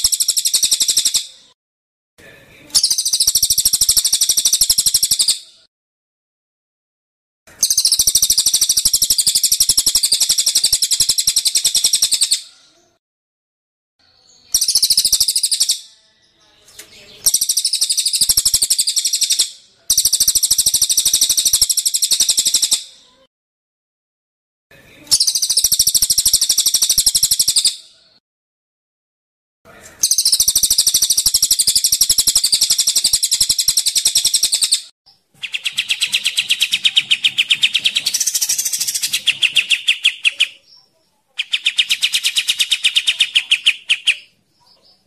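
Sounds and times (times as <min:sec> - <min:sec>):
songbirds rapid high-pitched calls: 0:00.0 - 0:01.5, 0:02.7 - 0:05.5, 0:07.5 - 0:12.6, 0:14.4 - 0:23.0, 0:25.1 - 0:27.8, 0:30.0 - 0:45.0.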